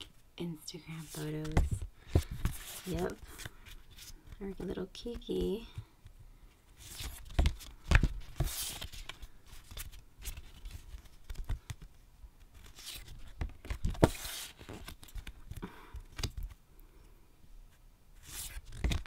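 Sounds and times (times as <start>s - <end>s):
postcards sliding and flipping: 0.9s - 4.4s, 6.7s - 11.9s, 12.5s - 16.6s, 18.2s - 19.0s.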